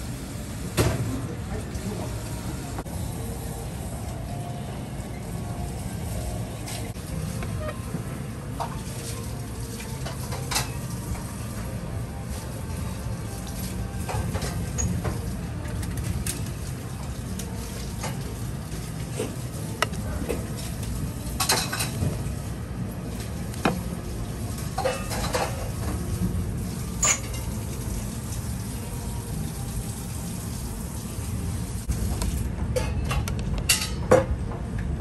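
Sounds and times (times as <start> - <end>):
metal pans and utensils clinking: 21.4 - 22.1, 24.7 - 26.0, 32.8 - 34.1.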